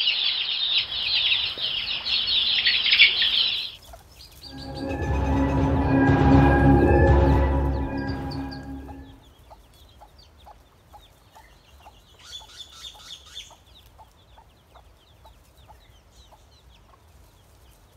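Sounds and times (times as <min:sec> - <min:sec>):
chicks peeping: 0:00.1 - 0:04.4, 0:09.5 - 0:17.9.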